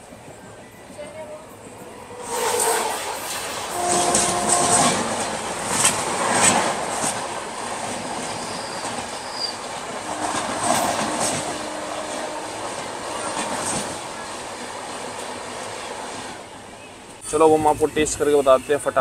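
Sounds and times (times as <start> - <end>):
train coaches rushing past: 0.0 - 19.0
wheels clacking over rail joints: 3.8 - 15.9
wheel squeal: 8.3 - 9.7.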